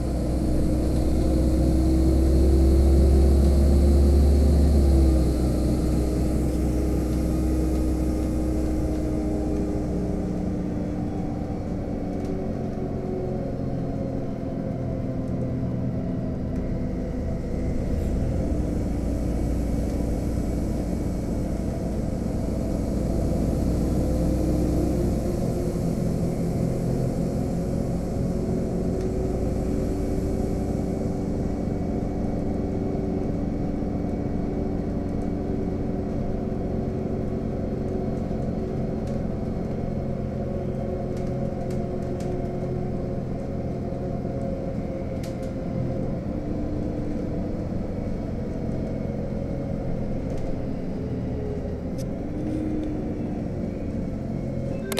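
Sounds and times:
bus engine drone: 0:00.0 - 0:54.9.

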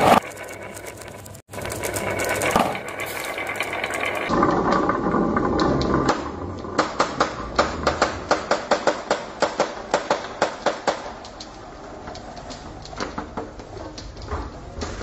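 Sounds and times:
marbles clacking on wooden floor: 0:00.0 - 0:09.2
marbles rolling down wooden track: 0:00.0 - 0:09.2.

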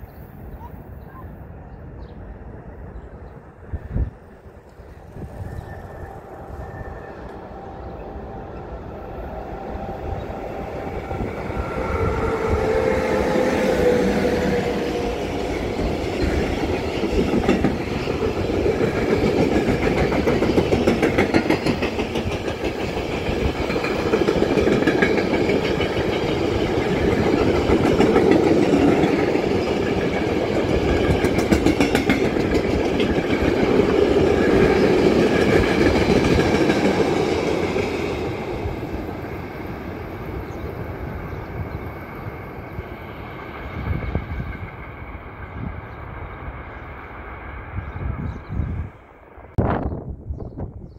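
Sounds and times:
wind buffeting microphone: 0:02.0 - 0:50.9
train wheels clattering over rails: 0:14.8 - 0:38.8.

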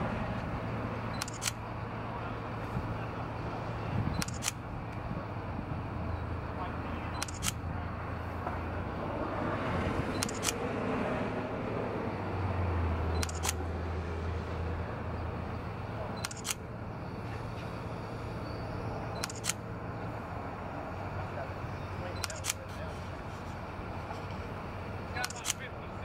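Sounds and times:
crane engine humming: 0:00.0 - 0:26.0
camera shutter double click: 0:01.2 - 0:01.6, 0:04.2 - 0:04.6, 0:07.2 - 0:07.6, 0:10.2 - 0:10.6, 0:13.2 - 0:13.6, 0:16.2 - 0:16.6, 0:19.2 - 0:19.6, 0:22.2 - 0:22.6, 0:25.2 - 0:25.6.

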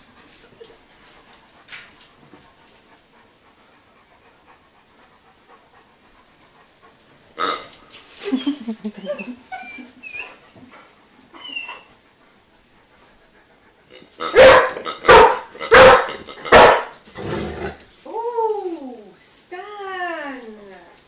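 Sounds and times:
dog barking: 0:14.3 - 0:16.9.

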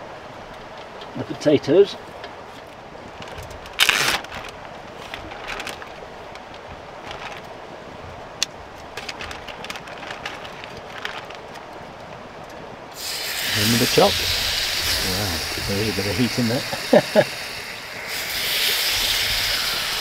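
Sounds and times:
steady faint hiss: 0:00.0 - 0:20.0
rustling: 0:02.5 - 0:07.6, 0:08.7 - 0:12.4.

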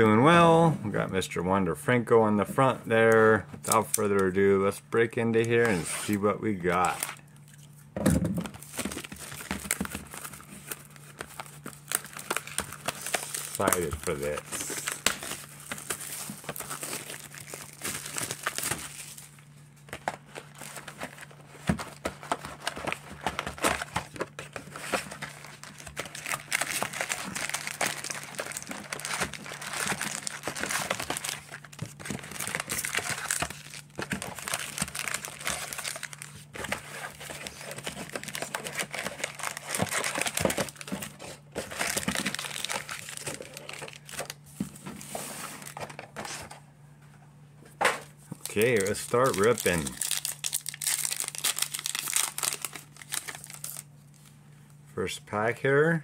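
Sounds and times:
plastic shrink-wrap tearing and crinkling: 0:08.5 - 0:21.5, 0:22.2 - 0:44.5, 0:48.4 - 0:54.3.

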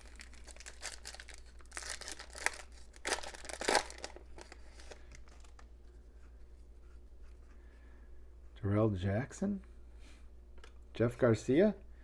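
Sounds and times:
foil wrapper crinkling and tearing: 0:00.0 - 0:05.6.

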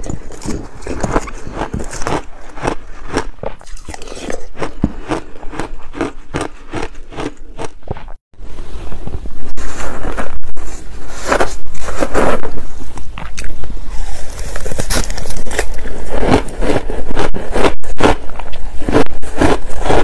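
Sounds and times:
crunching of crushed ice: 0:00.0 - 0:08.1, 0:14.2 - 0:20.0.

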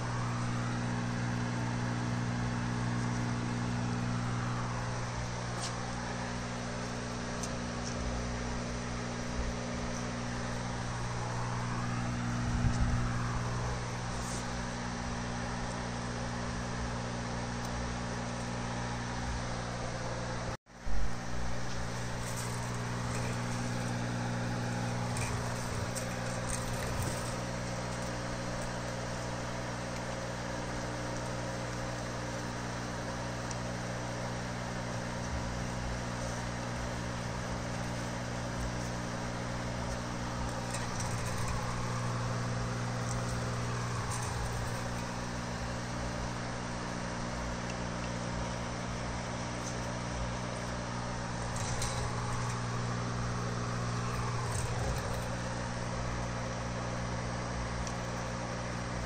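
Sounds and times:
low machine hum: 0:00.0 - 0:59.0.

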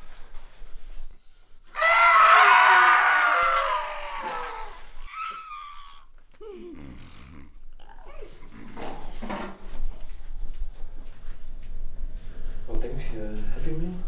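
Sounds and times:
man screaming: 0:01.8 - 0:05.3.

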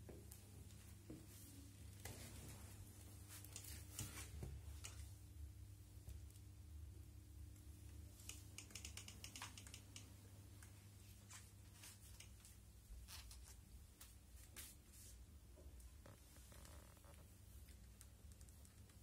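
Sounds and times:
low room hum: 0:00.0 - 0:19.0
light clicks and ticks: 0:07.5 - 0:10.8, 0:12.0 - 0:12.5, 0:17.6 - 0:19.0.

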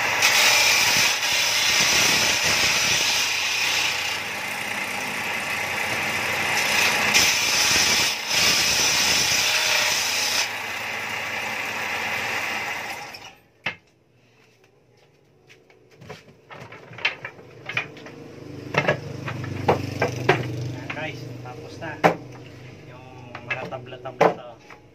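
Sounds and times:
table saw running: 0:00.0 - 0:13.4
wooden slats knocking: 0:16.6 - 0:20.6, 0:22.0 - 0:22.3, 0:23.3 - 0:24.5.

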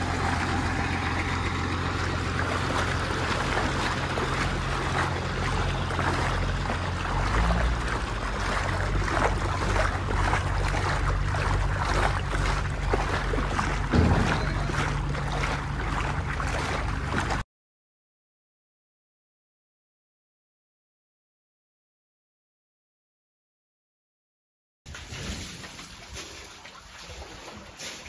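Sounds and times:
diesel engine running: 0:00.0 - 0:17.4
short thump: 0:13.7 - 0:15.2.

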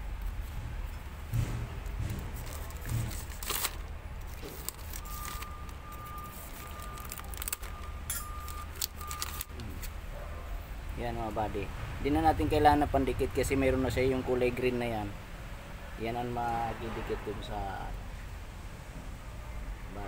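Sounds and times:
plastic packet crinkling: 0:02.4 - 0:10.0.

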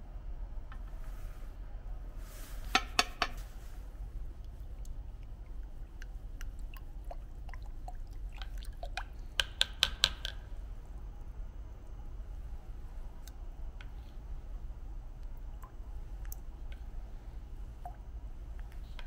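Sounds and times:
low steady hum: 0:00.0 - 0:19.0
plastic spoon stirring in jug: 0:04.4 - 0:10.3.

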